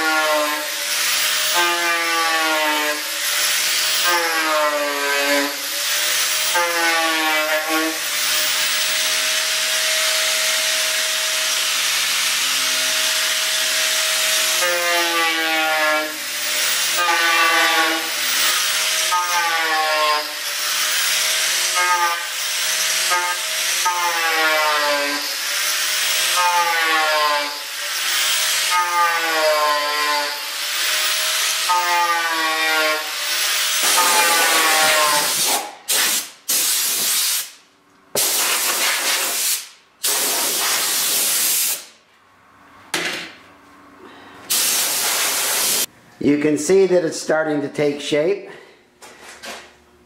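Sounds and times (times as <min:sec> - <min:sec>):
angle grinder whining: 0:00.0 - 0:35.8
compressed air blasts: 0:35.2 - 0:42.0, 0:44.4 - 0:45.9
sanding disc hissing: 0:44.5 - 0:45.9.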